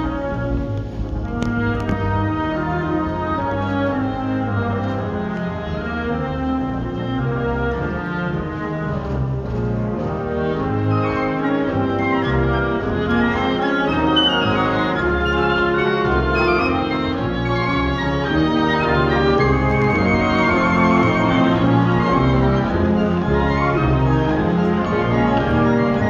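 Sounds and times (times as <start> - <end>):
military wind band playing: 0.0 - 26.0.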